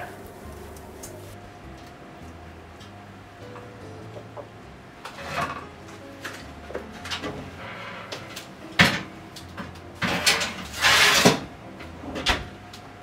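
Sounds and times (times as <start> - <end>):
metal oven rack clattering: 5.1 - 12.5.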